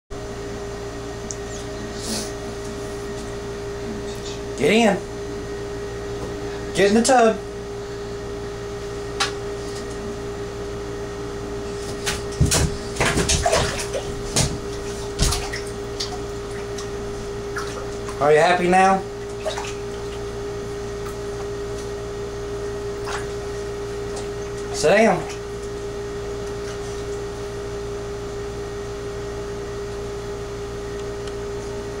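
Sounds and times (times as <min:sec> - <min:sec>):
steady background hum: 0:00.2 - 0:32.0
dog claws scrabbling on a tub: 0:11.8 - 0:18.2
dog thumping as it lands: 0:11.9 - 0:15.7.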